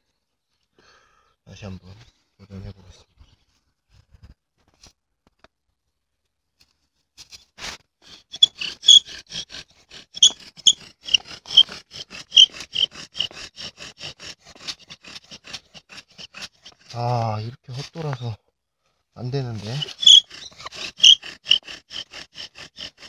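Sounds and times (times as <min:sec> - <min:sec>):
bow drill squeaking: 0:08.1 - 0:16.9, 0:19.5 - 0:23.0.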